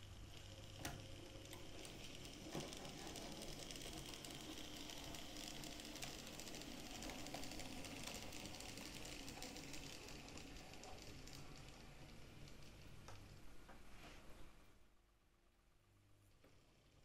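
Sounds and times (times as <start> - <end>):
model train motor whirring: 0.0 - 13.2
wheels clicking over rail joints: 1.4 - 13.3.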